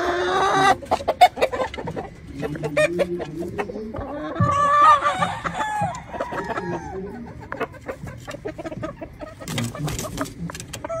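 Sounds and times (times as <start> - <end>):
chicken clucking: 0.0 - 11.0
rooster crowing: 4.8 - 7.1.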